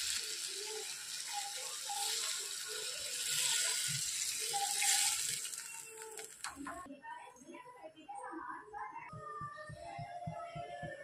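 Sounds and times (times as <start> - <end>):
steel spoon stirring and scraping: 0.0 - 6.4
water poured into hot pan: 0.0 - 6.6
vegetables sizzling in a steel pan: 0.0 - 6.8.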